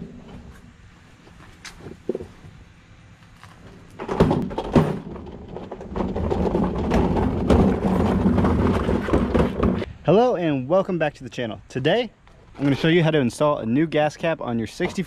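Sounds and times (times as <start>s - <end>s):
rolling seat rumbling: 3.4s - 9.9s
rolling seat thudding on concrete: 3.4s - 9.9s.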